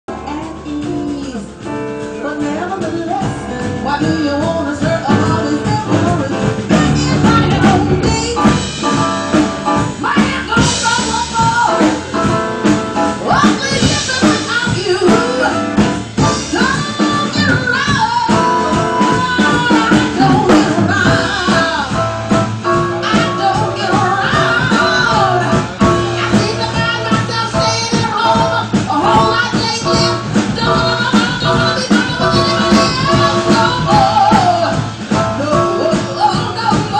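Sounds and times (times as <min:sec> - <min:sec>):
drums: 0:00.1 - 0:36.9
person singing: 0:13.2 - 0:36.9.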